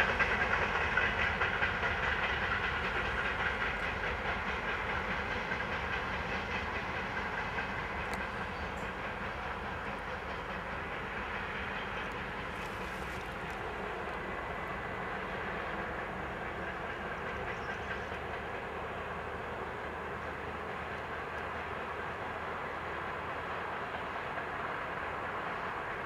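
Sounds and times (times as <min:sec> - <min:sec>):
diesel locomotive engine hum: 0:00.0 - 0:26.0
moving freight wagons: 0:05.9 - 0:15.8.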